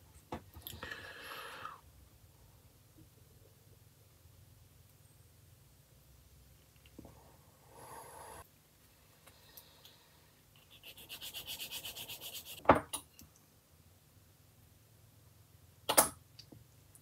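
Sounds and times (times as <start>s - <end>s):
sanding stick rubbing plastic: 10.7s - 12.6s.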